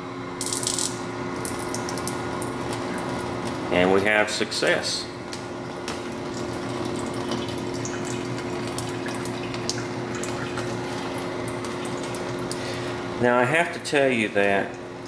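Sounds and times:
coolant pump humming: 0:00.0 - 0:15.0
coolant splashing on metal: 0:05.3 - 0:13.0.

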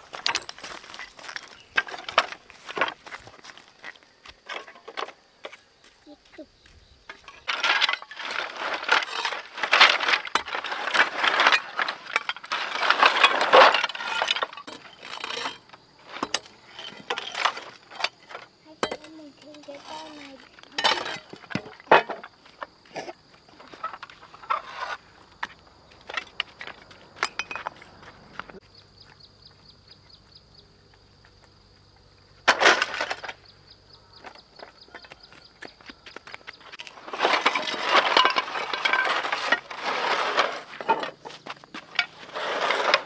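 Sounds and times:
roofing sheets clattering: 0:00.0 - 0:03.6, 0:07.1 - 0:22.4, 0:32.5 - 0:33.5, 0:36.7 - 0:43.0
hoes scraping dirt: 0:00.0 - 0:29.2, 0:30.9 - 0:43.0.

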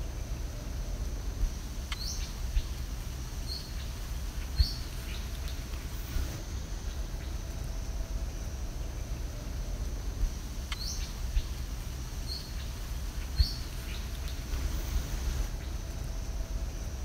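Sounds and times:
wind rumble on microphone: 0:00.0 - 0:17.0
bird chirps: 0:01.9 - 0:02.7, 0:03.4 - 0:05.6, 0:10.7 - 0:11.5, 0:12.2 - 0:15.0.

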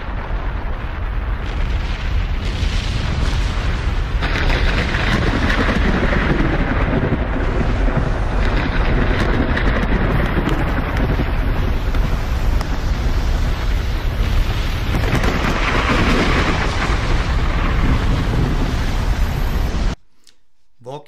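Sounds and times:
volcanic eruption rumble: 0:00.0 - 0:20.0
hissing noise: 0:11.2 - 0:20.4.

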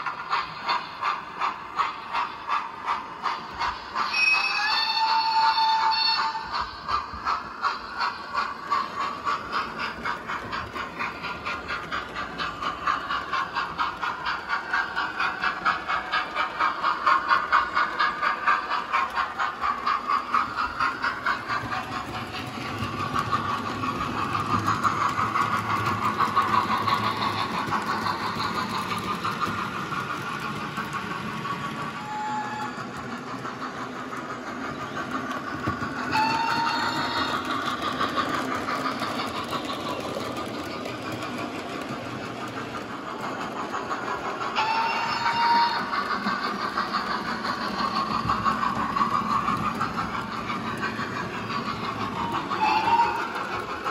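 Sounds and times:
model steam locomotive rhythmic beat: 0:00.0 - 0:53.9.

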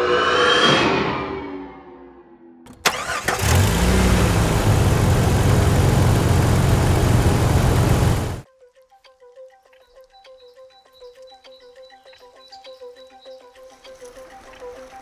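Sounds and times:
car engine starting and idling: 0:02.7 - 0:08.4.

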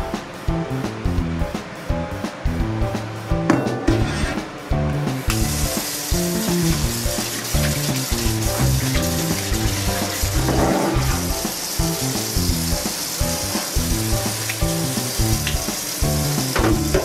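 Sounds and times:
background music: 0:00.0 - 0:17.0
tap water running into sink: 0:05.2 - 0:17.0
sponge scrubbing pan: 0:05.6 - 0:17.0.

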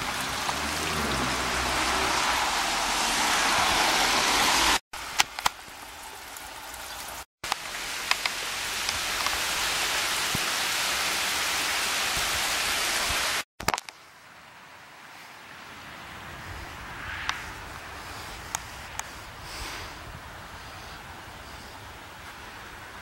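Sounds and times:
heavy rain falling: 0:00.0 - 0:13.4.

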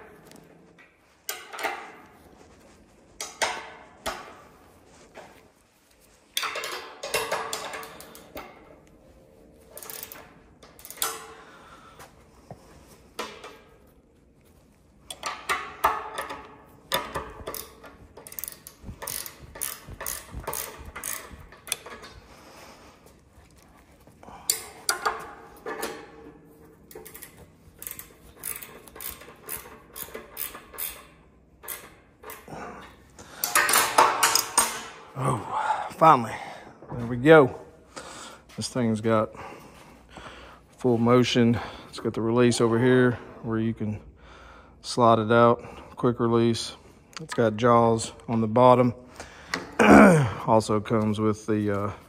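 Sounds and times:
ratcheting wrench clicking: 0:09.7 - 0:11.4, 0:15.1 - 0:22.2, 0:26.9 - 0:32.5.

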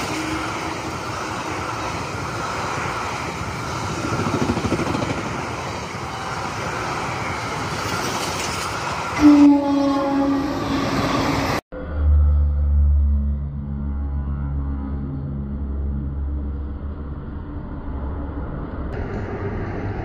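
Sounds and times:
train horn blast: 0:00.0 - 0:00.8, 0:09.2 - 0:11.4, 0:13.5 - 0:15.7
steady rushing noise: 0:00.0 - 0:09.2, 0:16.6 - 0:20.0.

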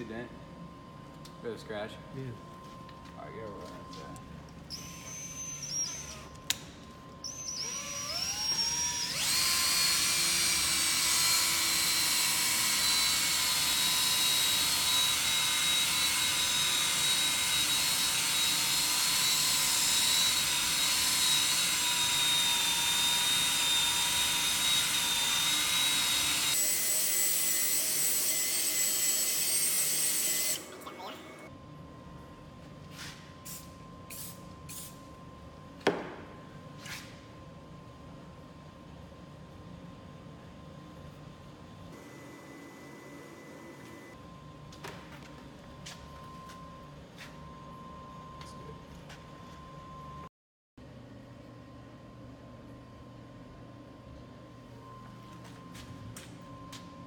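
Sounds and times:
drill whining: 0:04.7 - 0:06.4, 0:07.3 - 0:31.5.

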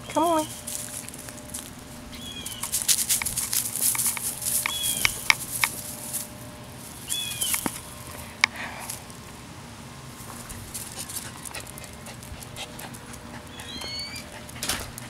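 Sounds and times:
dog rustling through pine straw: 0:00.4 - 0:09.1, 0:10.1 - 0:11.8.

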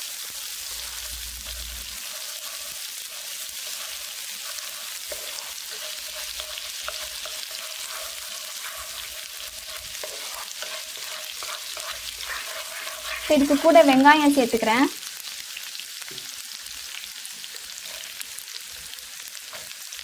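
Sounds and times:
paste sizzling in hot oil: 0:00.0 - 0:20.0
wooden spatula stirring: 0:00.6 - 0:14.6.

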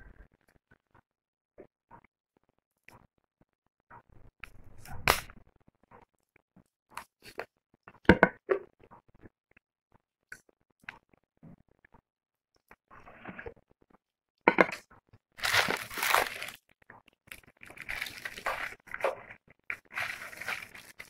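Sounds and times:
crab legs cracking: 0:15.4 - 0:21.0
sucking and chewing: 0:15.4 - 0:21.0.

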